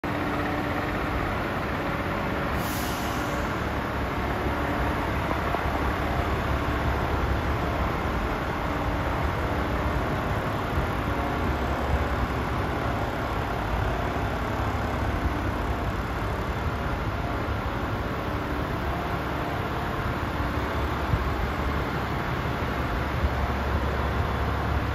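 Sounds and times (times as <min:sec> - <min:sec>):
diesel truck engine idling: 0:00.0 - 0:24.9
air hiss: 0:02.6 - 0:03.6.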